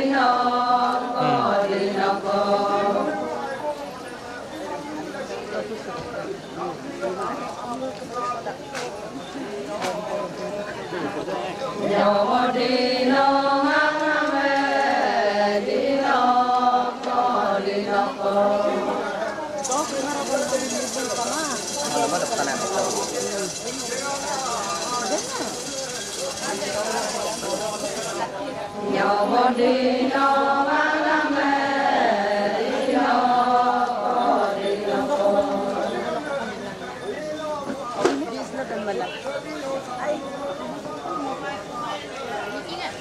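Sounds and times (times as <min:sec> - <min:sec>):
women singing in unison: 0:00.0 - 0:03.2, 0:11.8 - 0:19.1, 0:28.8 - 0:36.0.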